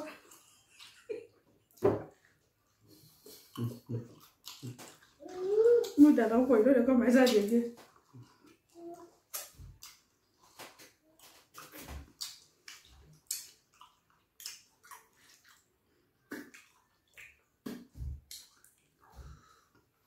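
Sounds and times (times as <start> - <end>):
wet eating smacks and sucks: 3.1 - 6.0, 7.2 - 19.2.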